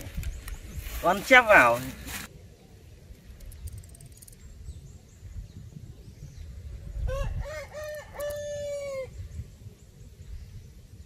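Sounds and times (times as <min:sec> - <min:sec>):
rooster crowing: 0:07.1 - 0:09.1.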